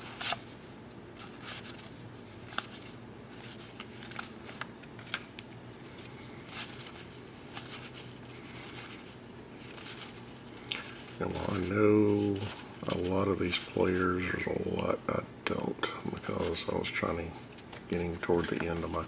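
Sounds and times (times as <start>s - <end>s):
cards flipped through by hand: 0.0s - 14.4s
faint low hum: 0.0s - 19.0s.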